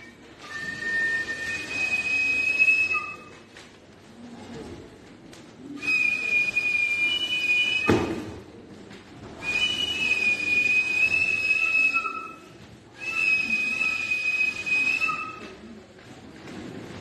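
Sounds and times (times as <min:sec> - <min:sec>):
brief thump: 0:07.8 - 0:08.4
high-pitched whistle notes: 0:09.4 - 0:12.4, 0:13.0 - 0:15.4.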